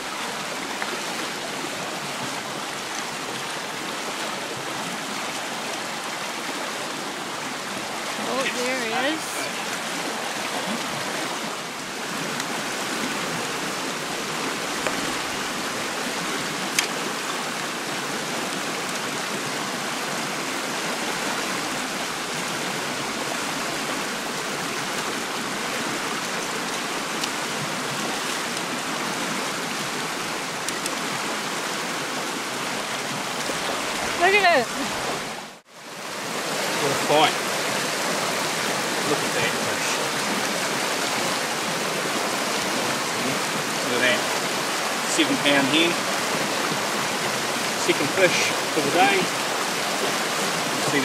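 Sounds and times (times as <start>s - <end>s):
river rushing over stones: 0.0s - 51.0s.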